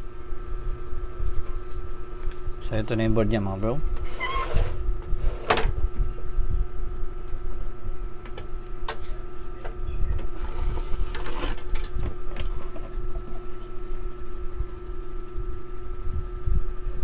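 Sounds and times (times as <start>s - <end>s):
low hum and rumble: 0.0s - 17.0s
rustling scrape: 4.0s - 5.5s, 10.4s - 11.7s.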